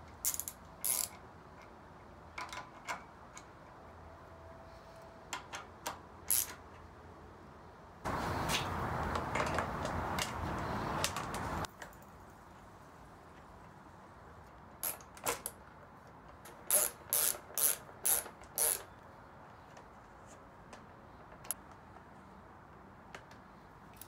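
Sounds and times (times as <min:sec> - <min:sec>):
hand ratchet strokes: 0:00.2 - 0:01.2, 0:06.3 - 0:06.6, 0:14.8 - 0:15.5, 0:16.5 - 0:18.9.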